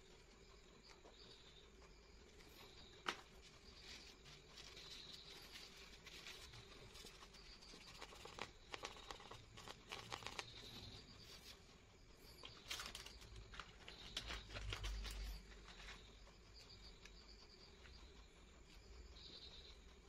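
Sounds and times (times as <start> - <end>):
hands rustling paper: 2.4 - 11.6, 12.3 - 16.1
fingers tapping on paper: 7.0 - 10.7.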